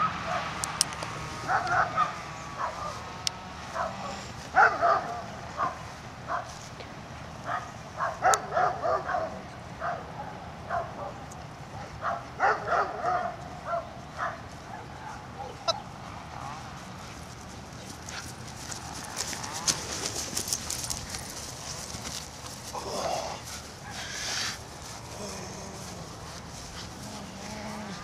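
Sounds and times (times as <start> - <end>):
dog yipping and barking: 7.5 - 10.0, 12.0 - 15.9.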